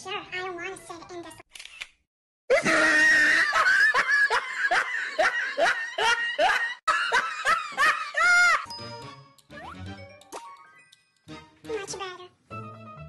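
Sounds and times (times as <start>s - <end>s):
high-pitched laughter: 2.5s - 8.7s.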